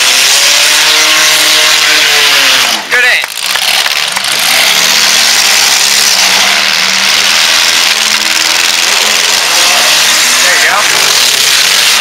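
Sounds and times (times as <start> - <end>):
car engines revving: 0.0 - 12.0.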